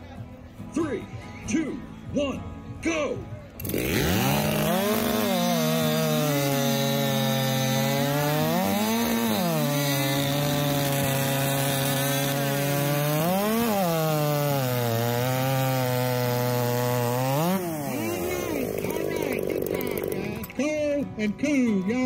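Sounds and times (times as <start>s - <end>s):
chainsaw cutting through log: 3.6s - 20.6s.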